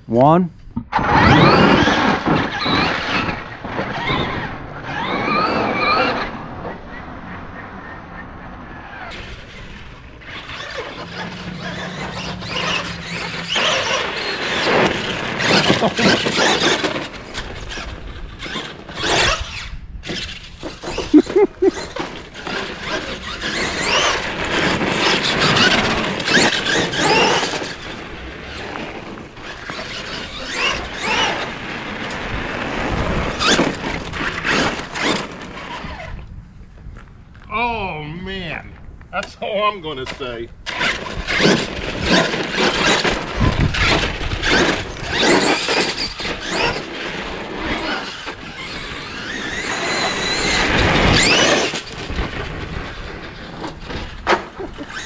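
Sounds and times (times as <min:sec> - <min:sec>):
rc truck motor whine: 0:00.9 - 0:06.8, 0:08.8 - 0:21.1, 0:21.7 - 0:36.3, 0:40.6 - 0:55.0
sharp clatter: 0:09.0 - 0:36.2, 0:40.0 - 0:55.0.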